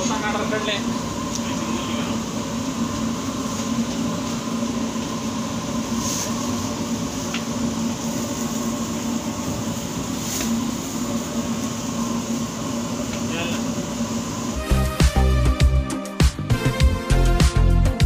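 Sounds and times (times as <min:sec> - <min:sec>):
bakery machinery humming: 0:00.0 - 0:18.0.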